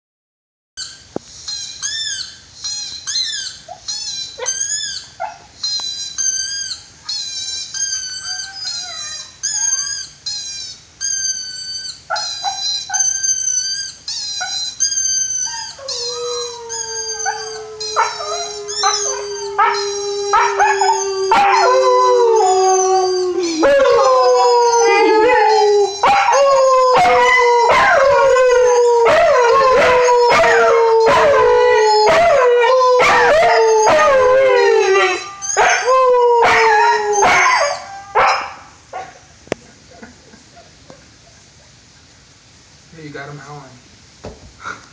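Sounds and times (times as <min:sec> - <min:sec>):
dog whining: 0:00.8 - 0:38.4
dog howling: 0:14.3 - 0:38.6.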